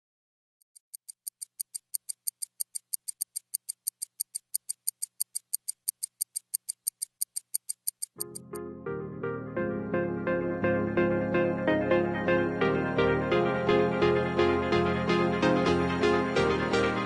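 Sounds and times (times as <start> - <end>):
rapid high-pitched ticking: 0.6 - 8.6
music: 8.2 - 17.0.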